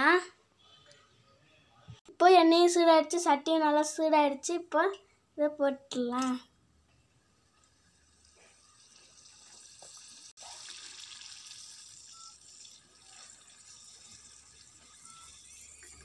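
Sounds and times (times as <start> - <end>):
food sizzling in hot oil: 7.5 - 16.0.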